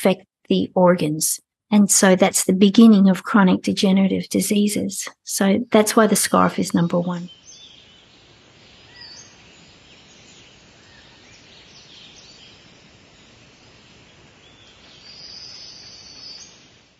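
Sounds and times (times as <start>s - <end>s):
birds chirping: 5.8s - 16.6s
steady hiss: 7.3s - 16.9s.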